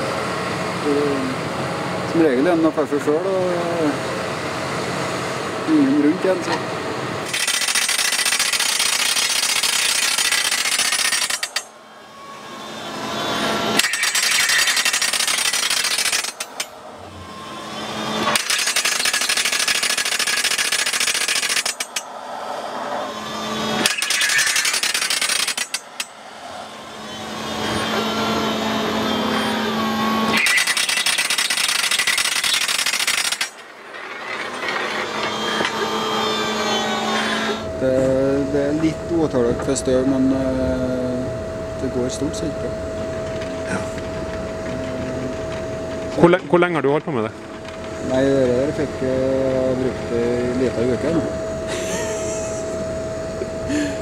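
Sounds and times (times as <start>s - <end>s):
rock drill hammering into rock: 7.3s - 11.7s, 13.7s - 16.7s, 18.0s - 22.1s, 23.6s - 26.1s, 30.2s - 36.2s.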